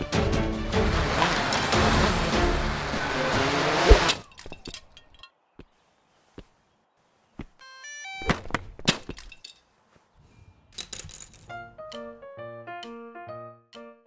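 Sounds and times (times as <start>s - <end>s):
loud breaking crashes: 0.7s - 3.0s
small pieces clinking: 9.0s - 9.7s, 10.7s - 11.6s.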